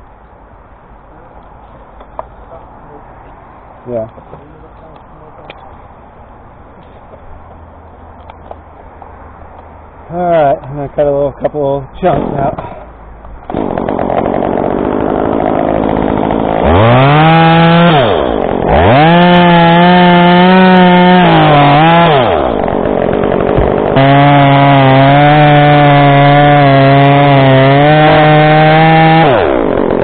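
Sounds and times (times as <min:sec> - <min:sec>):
chainsaw cutting wood: 0:13.5 - 0:30.0.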